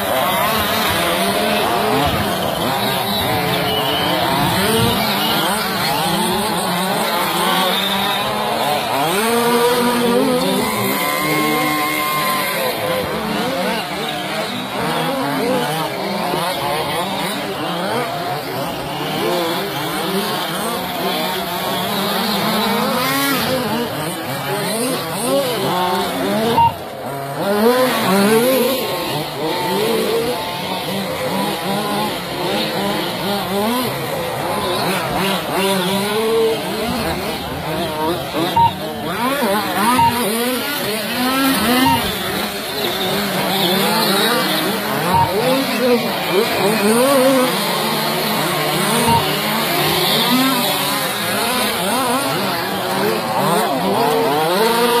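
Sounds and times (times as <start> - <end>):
small engines revving: 0.0 - 55.0.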